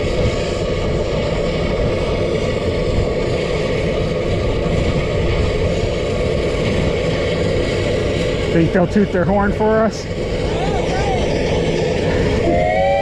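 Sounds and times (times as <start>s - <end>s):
steam locomotive running: 0.0s - 13.0s
wind buffeting microphone: 0.0s - 13.0s.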